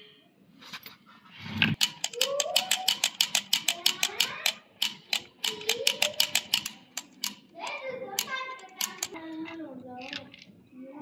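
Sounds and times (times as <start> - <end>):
rapid sharp clicks: 1.8 - 9.2.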